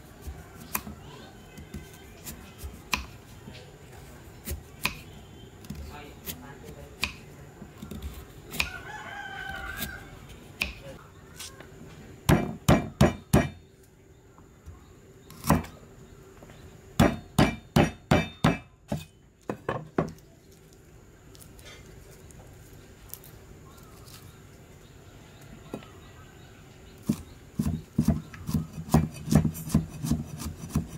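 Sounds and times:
rooster crowing: 0:08.6 - 0:10.3
cleaver chopping on wooden board: 0:12.3 - 0:13.6, 0:17.0 - 0:19.1, 0:27.0 - 0:30.9.

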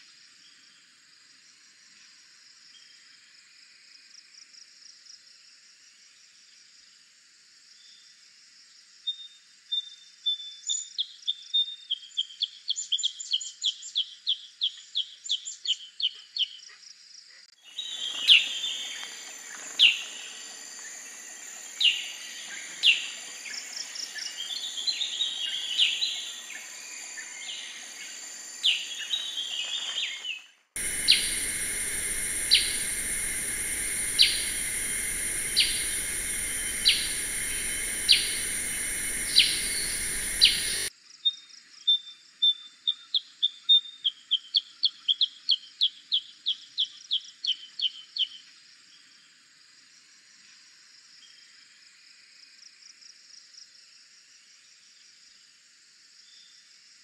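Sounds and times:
steady high hiss: 0:17.6 - 0:40.9
bird chirps and calls: 0:17.7 - 0:40.9.

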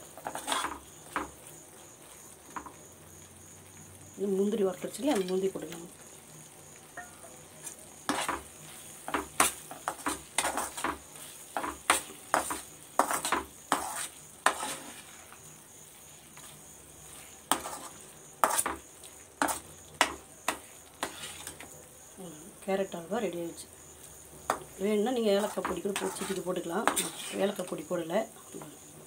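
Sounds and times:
metal spoon scraping metal pan: 0:00.2 - 0:00.8, 0:07.6 - 0:08.4, 0:11.6 - 0:15.2, 0:17.1 - 0:18.8, 0:19.4 - 0:21.7, 0:25.4 - 0:27.6.

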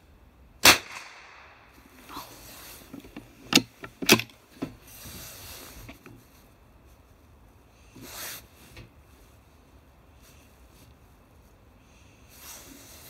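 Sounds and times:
rifle shot with echo: 0:00.6 - 0:01.8.

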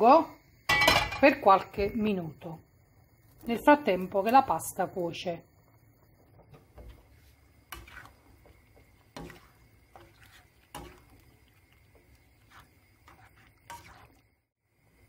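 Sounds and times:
utensil stirring food in sauce: 0:05.6 - 0:14.5.

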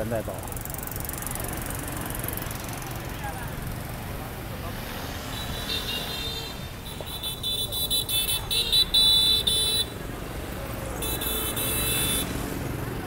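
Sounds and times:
cars driving: 0:00.0 - 0:13.0.

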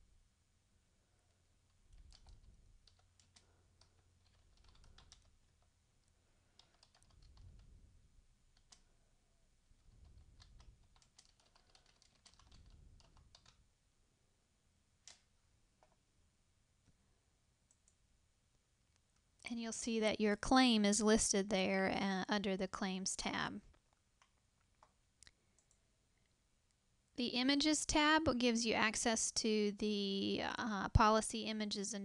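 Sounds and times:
faint typing on keyboard: 0:01.2 - 0:09.1, 0:09.7 - 0:13.7, 0:15.0 - 0:16.0, 0:17.6 - 0:18.0, 0:23.2 - 0:26.4.

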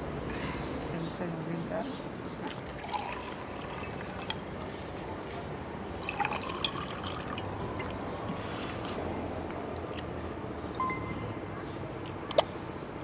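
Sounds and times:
water pouring into a glass: 0:02.7 - 0:04.4, 0:06.0 - 0:07.5.

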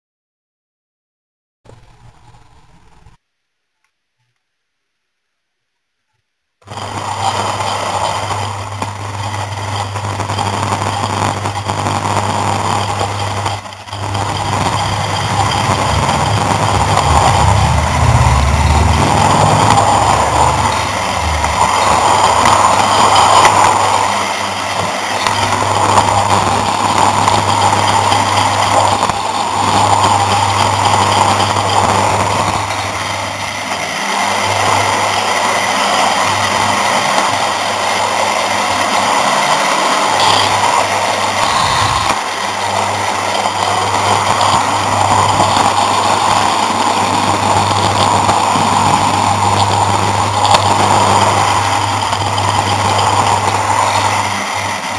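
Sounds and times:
steady low hum: 0:06.6 - 0:35.2
model train motor whirring: 0:06.7 - 0:54.9
wheels rolling on rails: 0:06.7 - 0:54.9.

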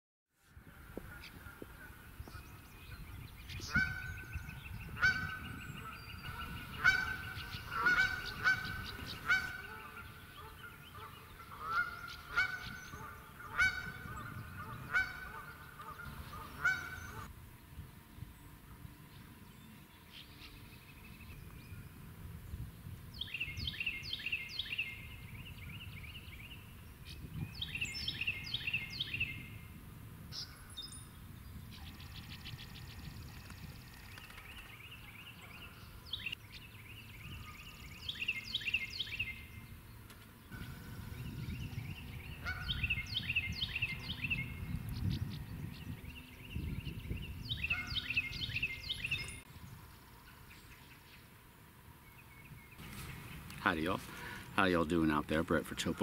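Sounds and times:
geese honking: 0:03.6 - 0:17.3, 0:42.3 - 0:44.3, 0:47.6 - 0:49.3.

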